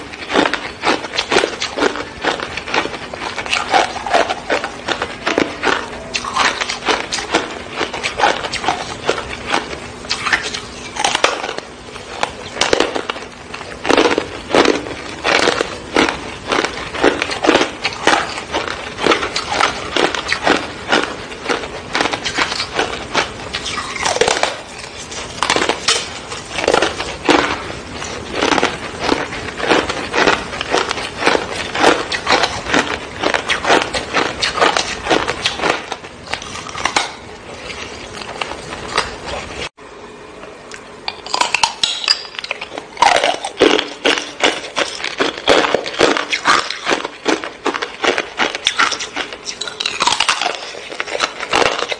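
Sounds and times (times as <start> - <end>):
teeth crunching ice bar: 0.0 - 39.6, 41.1 - 51.9.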